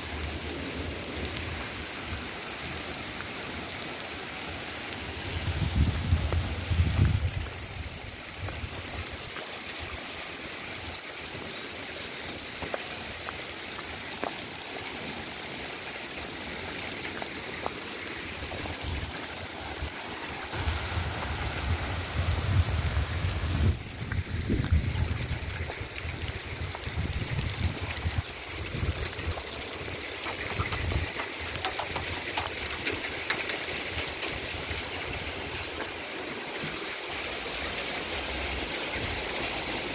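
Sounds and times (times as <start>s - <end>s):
hail and rain falling: 0.0s - 39.9s
wind rumble on microphone: 5.2s - 9.3s, 18.5s - 32.0s.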